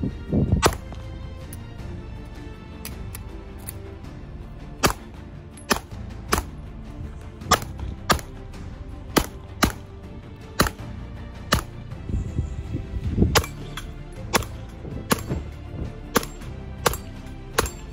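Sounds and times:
pistol shots: 0.6s - 1.0s, 4.8s - 6.6s, 7.4s - 8.4s, 9.1s - 9.9s, 10.6s - 10.9s, 11.5s - 11.8s, 13.4s - 17.9s.

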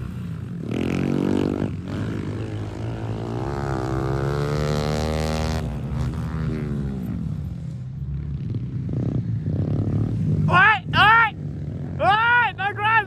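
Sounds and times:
dirt bike engine revving: 0.0s - 7.4s.

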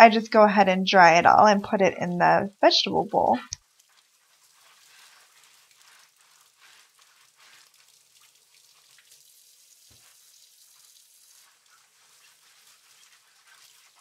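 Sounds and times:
faucet running into sink: 8.2s - 12.1s.

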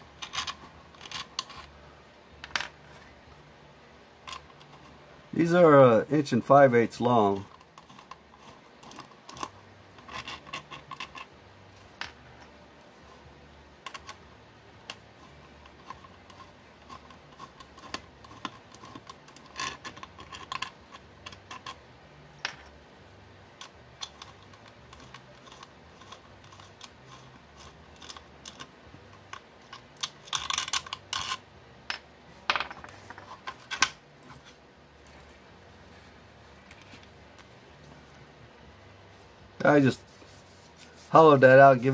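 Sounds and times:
metal screws set on table: 24.0s - 34.5s.

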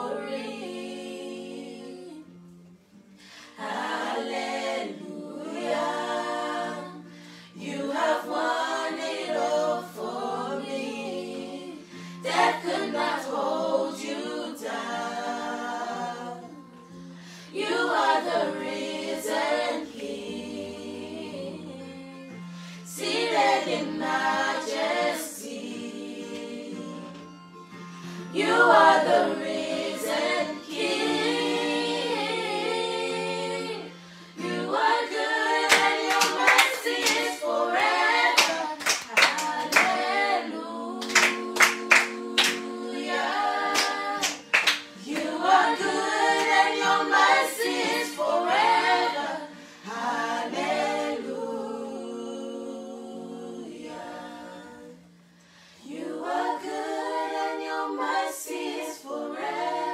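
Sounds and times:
group singing unaccompanied: 0.0s - 2.4s, 3.2s - 59.9s
hand claps: 35.7s - 37.4s, 38.3s - 40.1s, 41.0s - 42.7s, 43.7s - 45.4s.

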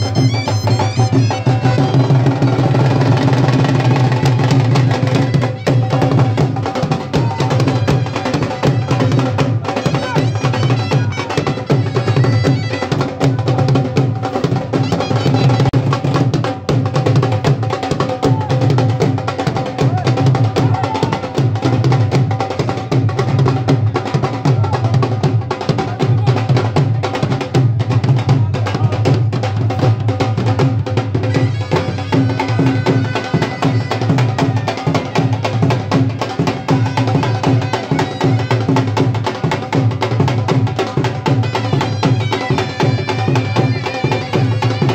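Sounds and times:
held melody tone: 0.0s - 2.4s
dhol drums playing: 0.0s - 44.9s.

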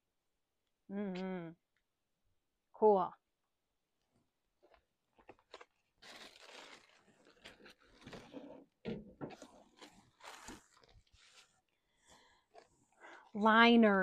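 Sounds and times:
packaging crinkling: 5.1s - 8.6s, 9.3s - 12.7s.

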